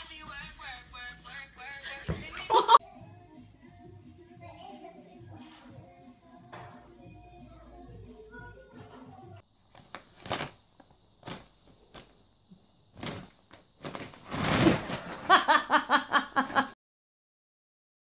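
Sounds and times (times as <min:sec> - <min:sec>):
paper bag rustling and crinkling: 0:09.7 - 0:12.1, 0:13.0 - 0:15.4.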